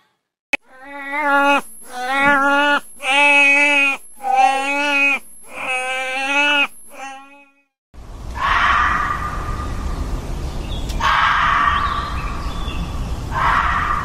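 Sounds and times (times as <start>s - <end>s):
elephant seal calling: 0.6s - 7.5s.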